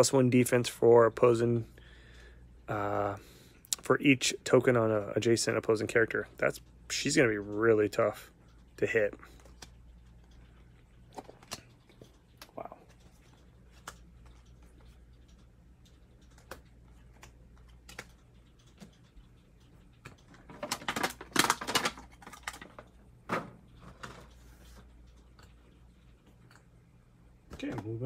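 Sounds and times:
plastic packaging crackling: 0:20.3 - 0:22.9.

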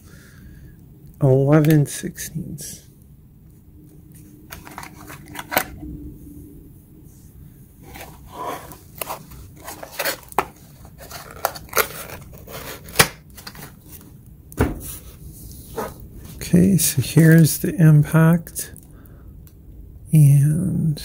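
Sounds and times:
cardboard scraping: 0:04.5 - 0:05.8, 0:07.8 - 0:14.1.

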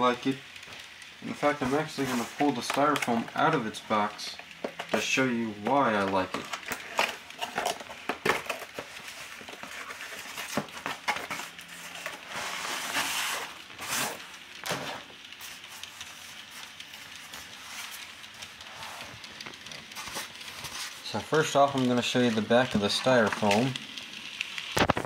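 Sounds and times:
styrofoam rubbing and scraping: 0:01.2 - 0:03.5, 0:06.3 - 0:16.3.

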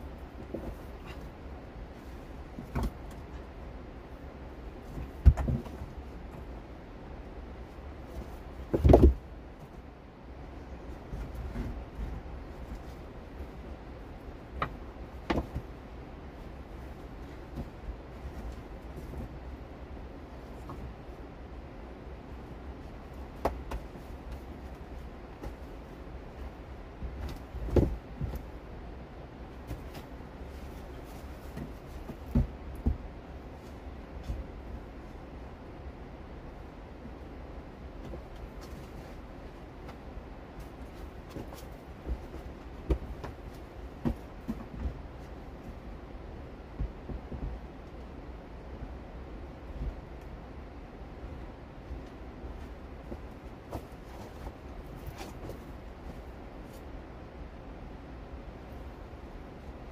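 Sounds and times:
steady low rumble: 0:00.0 - 0:59.9
rocks knocking and thudding: 0:04.9 - 0:05.9, 0:08.6 - 0:09.2, 0:14.6 - 0:15.7, 0:27.0 - 0:28.5.

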